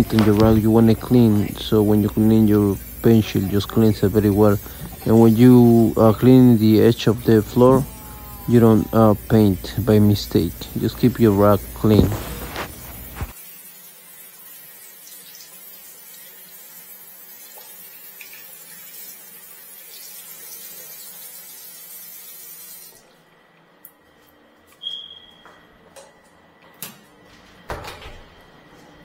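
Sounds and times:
tap water running into sink: 0:00.0 - 0:07.8.

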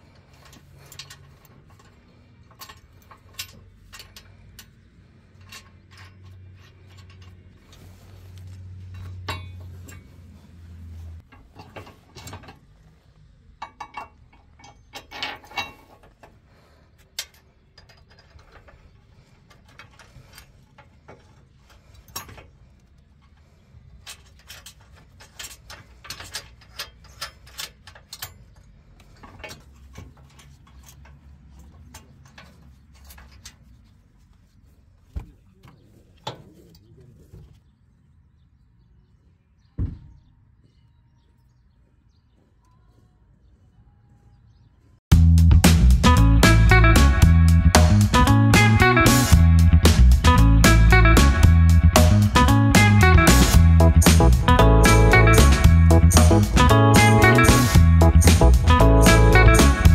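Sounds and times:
metal parts clinking: 0:00.0 - 0:07.8, 0:13.6 - 0:16.4, 0:17.0 - 0:33.9
low hum: 0:45.1 - 0:59.9.

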